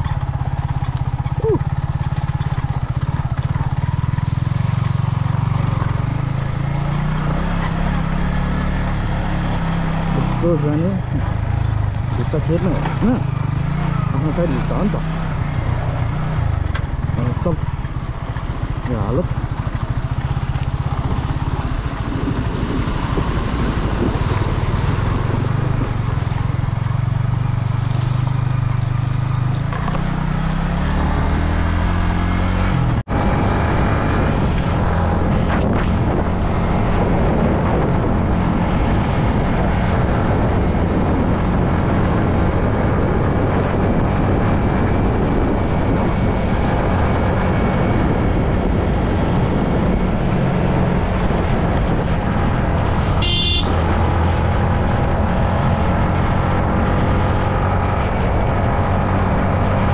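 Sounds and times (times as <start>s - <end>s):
motorcycle engine running: 0.0s - 59.9s
wind rushing: 19.6s - 27.4s, 30.6s - 59.9s.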